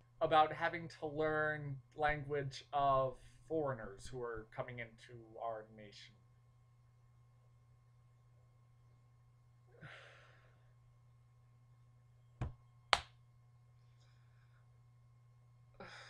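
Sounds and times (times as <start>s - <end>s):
low electrical hum: 0.0s - 16.0s
hand slapping head: 12.4s - 13.1s.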